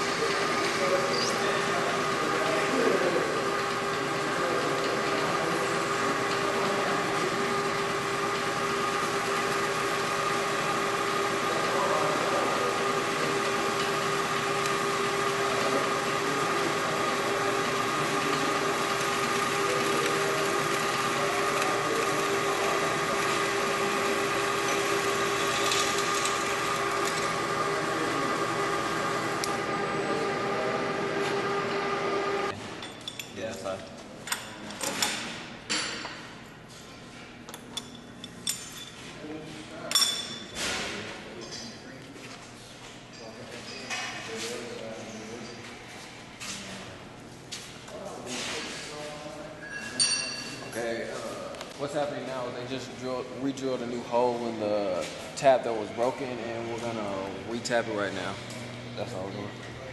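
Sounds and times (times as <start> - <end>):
milling machine drilling metal: 0.0 - 32.6.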